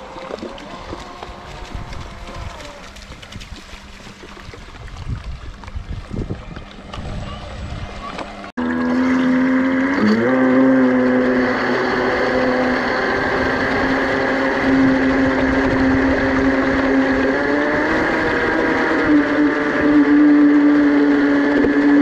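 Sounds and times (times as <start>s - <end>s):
model boat motor whine: 0.0s - 3.4s, 6.3s - 22.0s
water rushing: 0.0s - 22.0s.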